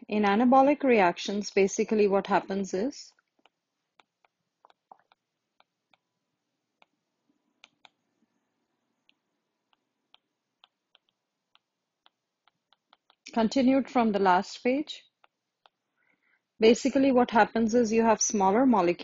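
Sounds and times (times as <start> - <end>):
stylus tapping touchscreen: 3.2 - 6.1, 7.6 - 8.1, 9.0 - 13.4, 15.1 - 15.9.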